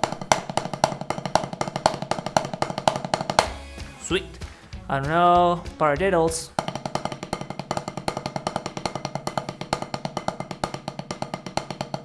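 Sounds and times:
drumsticks playing rudiment: 0.0s - 9.5s.

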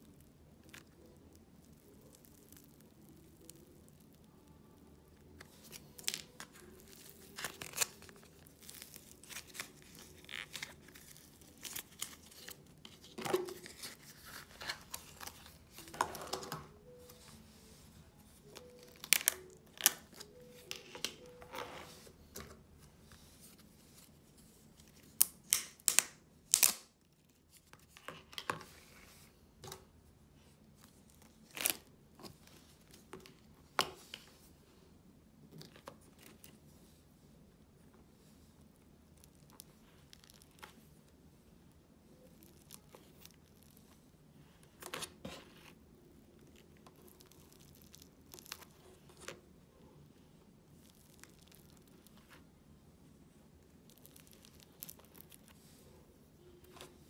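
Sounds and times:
clay being squished: 0.2s - 16.7s, 24.9s - 27.0s, 53.8s - 55.6s.

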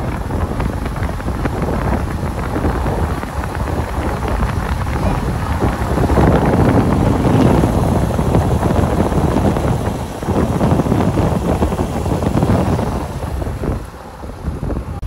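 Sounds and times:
motorcycle engine running: 0.0s - 15.0s
wind buffeting microphone: 0.0s - 15.0s.

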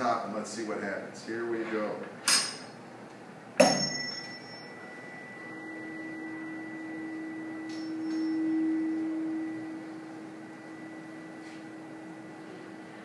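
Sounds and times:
tuning fork ringing hum: 3.6s - 13.0s
tuning fork struck: 3.6s - 13.0s.

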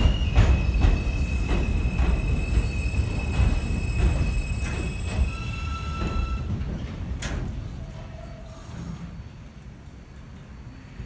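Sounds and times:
high-pitched train whine: 0.0s - 6.6s
train wheels clacking: 0.0s - 9.2s.

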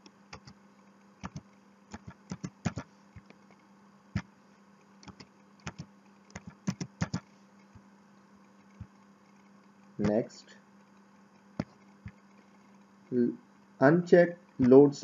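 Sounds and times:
keyboard and mouse clicking: 0.0s - 0.6s, 1.2s - 3.5s, 5.0s - 7.3s
steady low hum: 0.0s - 15.0s.

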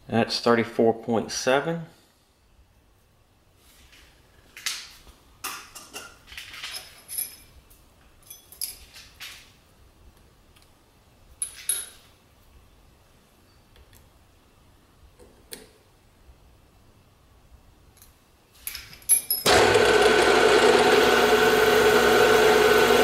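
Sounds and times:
hex key clinking on metal: 18.7s - 19.5s.

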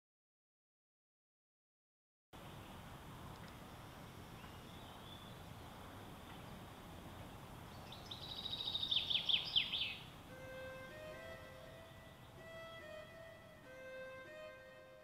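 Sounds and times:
faint hiss: 2.4s - 15.0s
songbird trilling: 7.7s - 10.2s.

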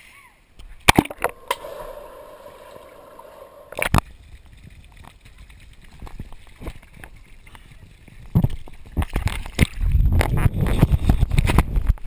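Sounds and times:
loud water splashing: 0.9s - 4.6s
muffled underwater hum: 1.1s - 4.2s
small splashes and drips: 4.2s - 10.0s.

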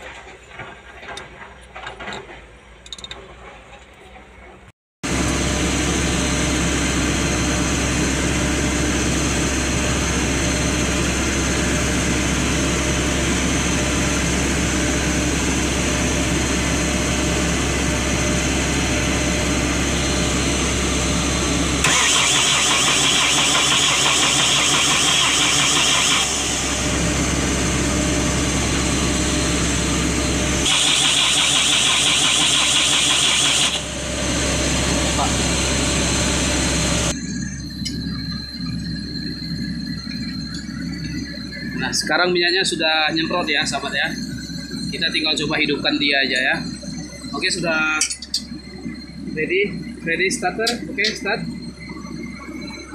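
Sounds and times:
diesel engine cranking on starter: 0.0s - 38.6s.

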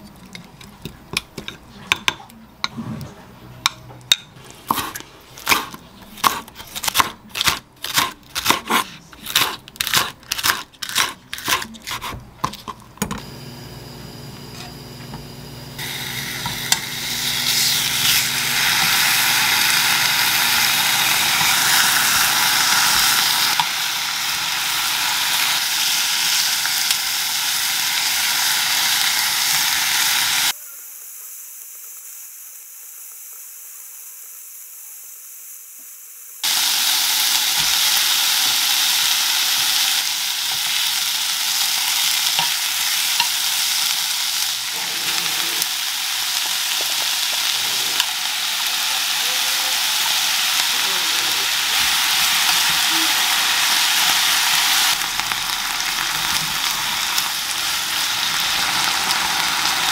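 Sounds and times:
meat sizzling in frying pan: 15.8s - 34.3s, 36.4s - 59.9s.

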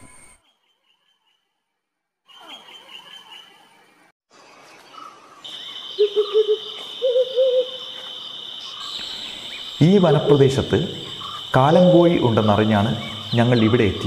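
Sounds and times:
crickets trilling: 5.4s - 14.0s
owl hooting: 5.4s - 14.0s.

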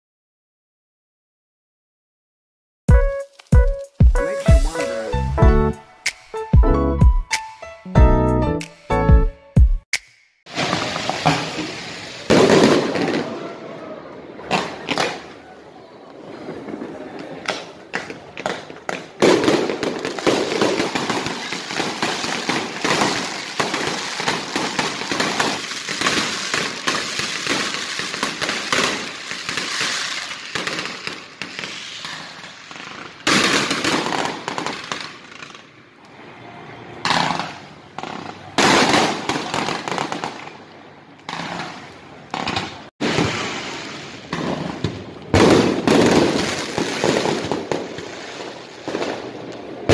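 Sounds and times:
fireworks crackling bangs: 10.5s - 13.7s, 14.3s - 15.4s, 16.2s - 35.9s, 37.0s - 40.6s, 41.2s - 49.9s.

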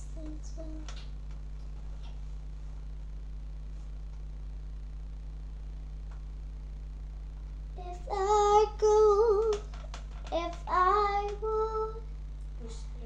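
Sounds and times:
girl singing wavering notes: 0.0s - 0.9s, 7.8s - 9.7s, 10.3s - 12.1s
steady low hum: 0.0s - 13.0s.

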